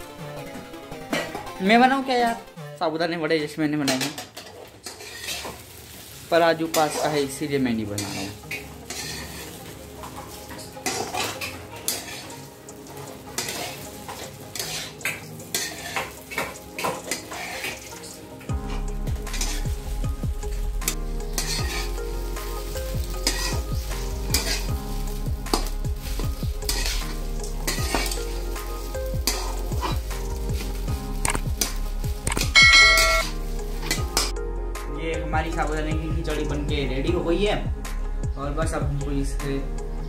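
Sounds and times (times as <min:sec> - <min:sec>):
food sizzling: 0:03.6 - 0:34.5
metal spatula scraping a pan: 0:03.9 - 0:19.8, 0:20.8 - 0:24.8, 0:25.5 - 0:34.3
spatula clinking against pan: 0:32.6 - 0:33.3.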